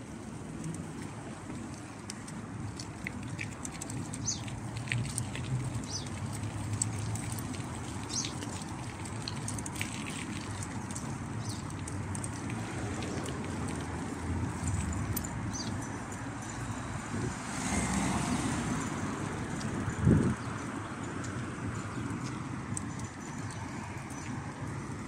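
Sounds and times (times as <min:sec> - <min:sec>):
wind and tyre rumble: 0:00.0 - 0:25.0.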